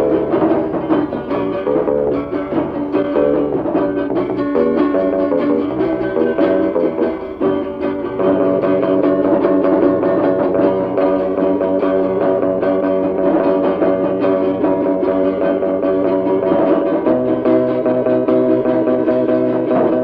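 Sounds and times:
instrumental rock band: 0.0s - 20.0s.

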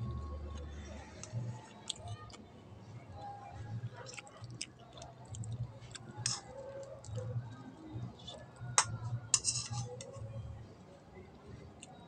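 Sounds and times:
metal spoon scraping on dishes: 6.2s - 6.5s, 8.8s - 10.2s.

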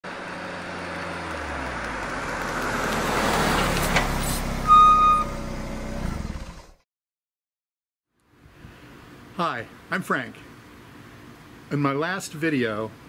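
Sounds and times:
motor vehicle running: 0.1s - 6.8s
high-pitched steady tone: 4.7s - 5.4s.

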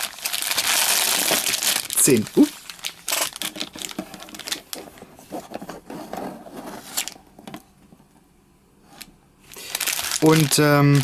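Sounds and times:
wrapped packs rustling and crinkling: 0.0s - 5.6s, 9.5s - 11.0s.

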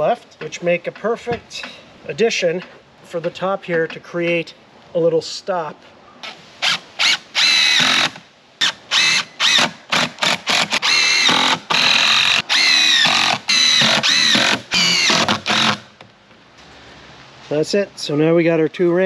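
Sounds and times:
impact driver motor whine: 6.6s - 15.8s.

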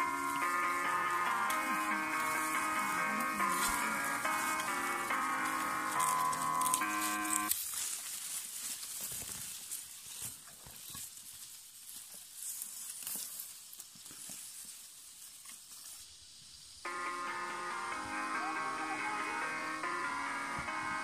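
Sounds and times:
music: 0.0s - 7.5s, 16.9s - 21.0s
rice stalks rustling and crackling: 0.0s - 17.3s
faint hiss: 7.2s - 21.0s.

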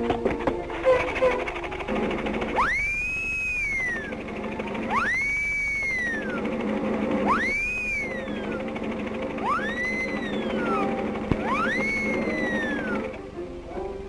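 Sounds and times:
steady low hum: 0.0s - 14.0s
rising and falling whistle tone: 2.5s - 4.2s, 4.8s - 6.6s, 7.2s - 8.7s, 9.4s - 13.2s.

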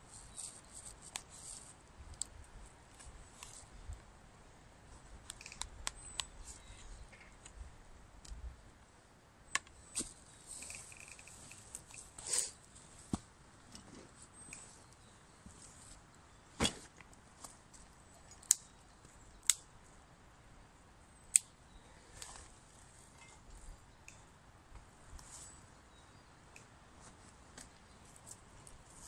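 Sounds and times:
sharp clicks: 5.2s - 6.4s.

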